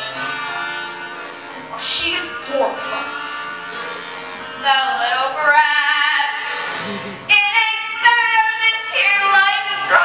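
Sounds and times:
music: 0.0s - 10.0s
young people singing: 4.6s - 10.0s.

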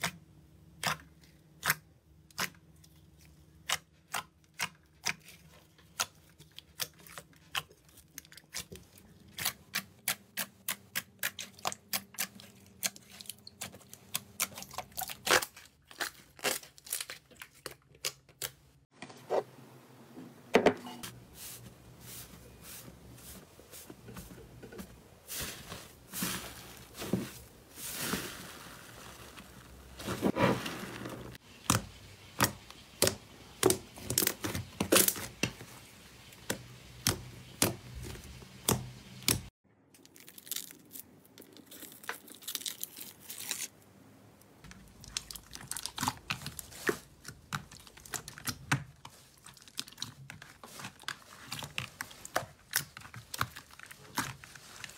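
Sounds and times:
slime squelching and popping: 44.7s - 54.9s.

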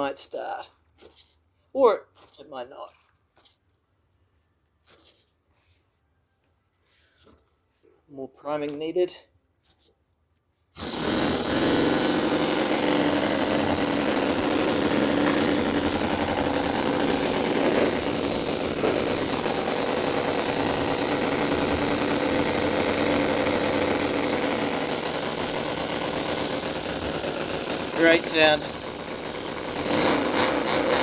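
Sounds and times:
model petrol engine running: 10.8s - 31.0s.

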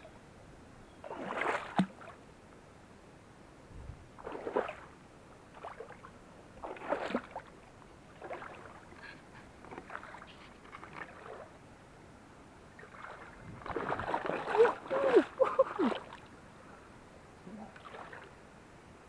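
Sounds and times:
water splashing from wading steps: 1.0s - 2.2s, 4.2s - 4.9s, 5.5s - 7.6s, 8.2s - 11.6s, 12.8s - 16.3s, 17.7s - 18.3s.

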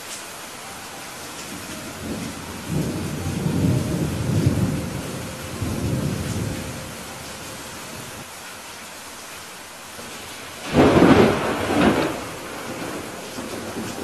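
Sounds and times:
heavy rain: 0.0s - 14.0s
thunder rumbling: 1.1s - 8.3s, 10.0s - 14.0s.

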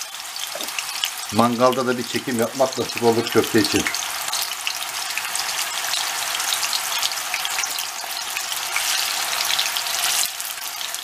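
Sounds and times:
meat patties sizzling in oil: 0.0s - 11.0s.

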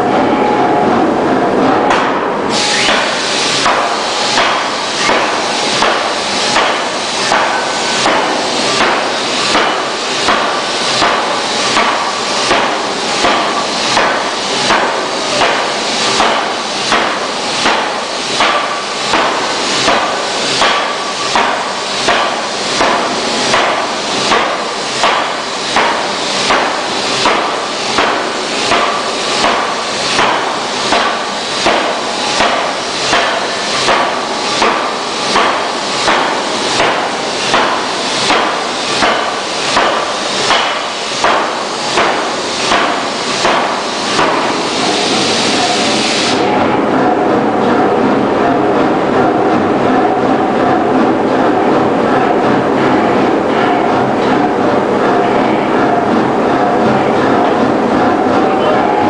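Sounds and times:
forging hammer blows: 1.9s - 45.3s.

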